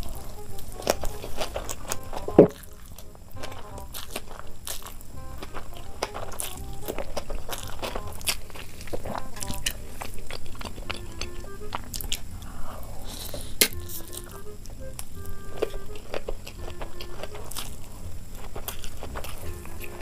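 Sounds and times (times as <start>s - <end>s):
soft background melody: 0.0s - 12.8s, 13.7s - 20.0s
biting and chewing noodles: 0.0s - 20.0s.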